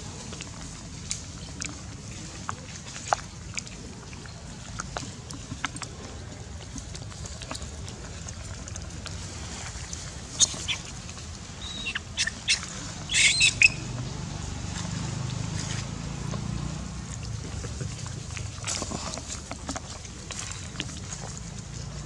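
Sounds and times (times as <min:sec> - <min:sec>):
low steady rumble: 0:00.0 - 0:22.0
macaques squealing: 0:11.6 - 0:13.8.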